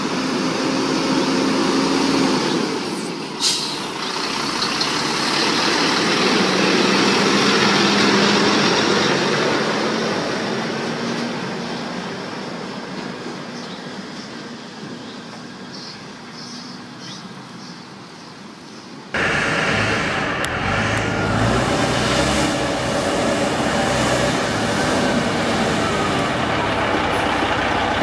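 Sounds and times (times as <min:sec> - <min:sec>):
truck diesel engine at low revs: 0:00.0 - 0:15.0, 0:19.1 - 0:28.0
air brake hiss: 0:03.4 - 0:03.9.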